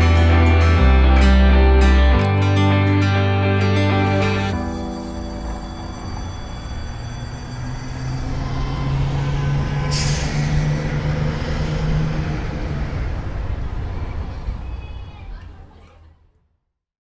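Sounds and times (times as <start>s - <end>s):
bus engine droning: 0.0s - 16.2s
air brake hiss: 9.8s - 12.0s.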